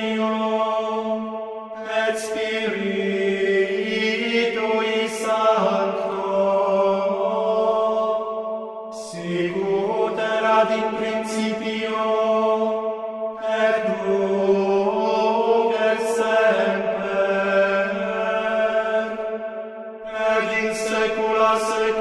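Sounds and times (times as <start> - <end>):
men singing chant: 0.0 - 1.2, 1.8 - 12.8, 13.4 - 19.4, 20.0 - 22.0.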